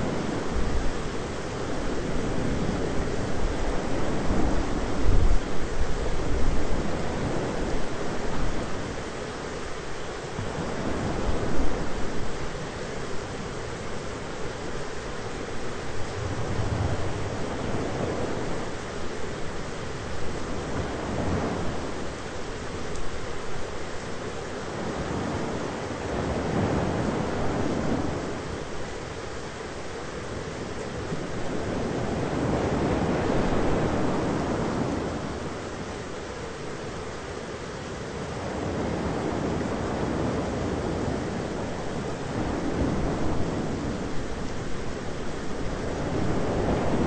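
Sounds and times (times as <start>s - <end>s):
rain rushing: 0.0s - 47.0s
wind: 0.0s - 47.0s
distant thunder rumble: 15.8s - 19.0s.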